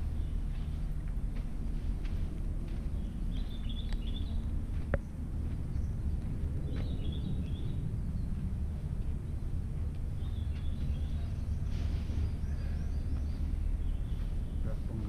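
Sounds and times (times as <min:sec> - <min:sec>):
low rumble: 0:00.0 - 0:15.0
small bird chirping: 0:02.8 - 0:05.1.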